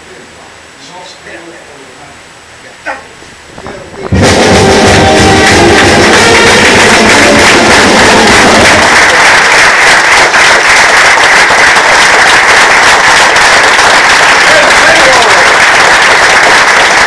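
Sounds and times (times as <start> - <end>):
music playing: 4.0 - 9.3
audience applause: 4.0 - 17.0.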